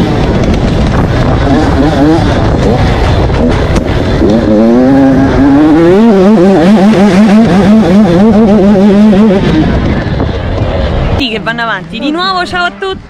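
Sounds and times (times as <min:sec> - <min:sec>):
two-stroke motorbike engine revving: 0:00.0 - 0:10.6
wind rumble on microphone: 0:00.0 - 0:13.0.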